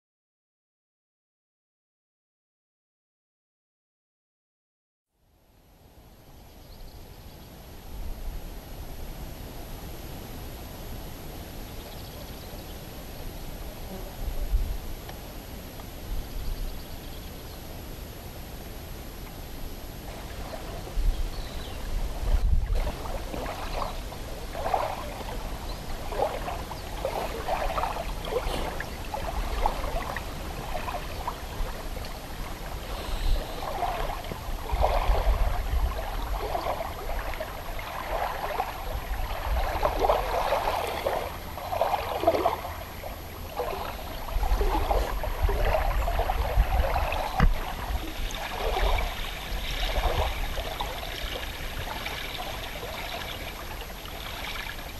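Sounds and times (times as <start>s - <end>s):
waves lapping on pebbly shore: 43.6s - 54.9s.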